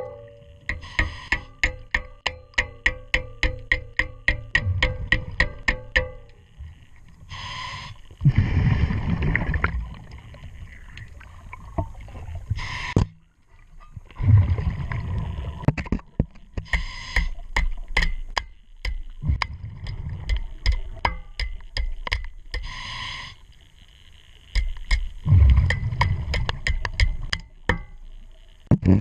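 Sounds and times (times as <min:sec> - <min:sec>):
sharp evenly spaced ticks: 0:00.1 - 0:08.2, 0:19.9 - 0:28.7
regulator hissing inhale: 0:00.8 - 0:01.5, 0:07.3 - 0:08.4, 0:12.5 - 0:13.0, 0:16.6 - 0:17.4, 0:22.6 - 0:23.5.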